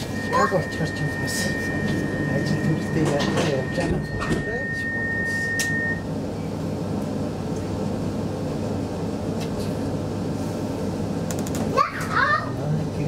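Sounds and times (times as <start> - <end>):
steady high tone: 0.0 - 6.1
train carriage equipment hum: 0.0 - 13.0.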